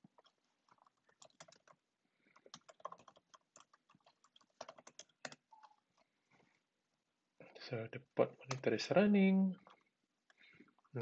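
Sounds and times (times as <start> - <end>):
keyboard typing: 0.0 - 6.0, 9.6 - 11.0.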